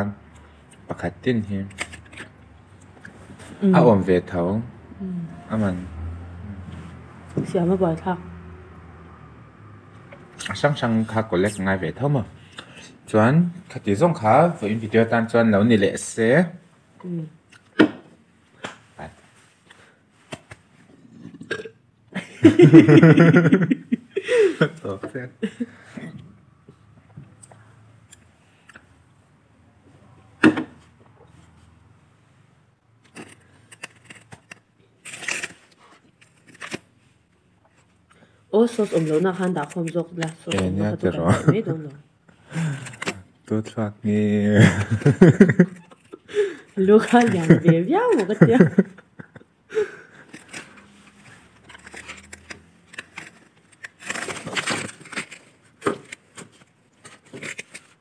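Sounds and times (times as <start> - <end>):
chewing and crunching: 50.1 - 58.0.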